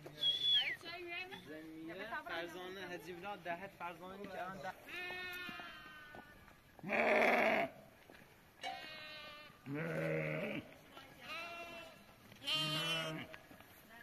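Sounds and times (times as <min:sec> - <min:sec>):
sheep and goats bleating: 0:04.8 - 0:07.8, 0:08.6 - 0:13.4.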